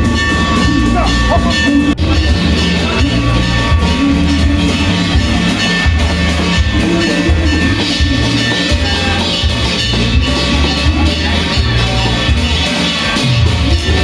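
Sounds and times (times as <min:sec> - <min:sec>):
loud music with heavy drumming: 0:00.0 - 0:14.0.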